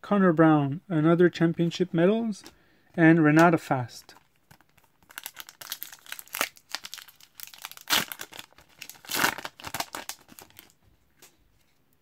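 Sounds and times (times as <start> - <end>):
foil wrapper tearing and crinkling: 4.5 - 10.7.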